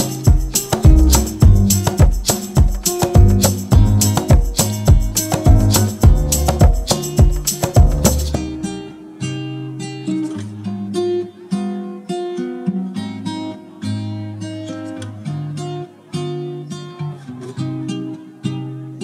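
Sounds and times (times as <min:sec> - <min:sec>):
full background music passage: 0:00.0 - 0:09.5
plucked guitar-like notes: 0:00.0 - 0:19.0.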